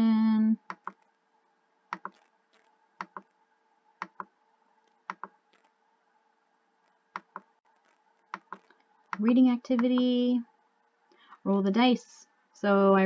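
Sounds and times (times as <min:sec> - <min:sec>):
faint steady hum: 0:00.0 - 0:13.0
computer mouse clicks: 0:00.6 - 0:01.1, 0:01.9 - 0:03.4, 0:04.0 - 0:05.7, 0:06.8 - 0:10.1.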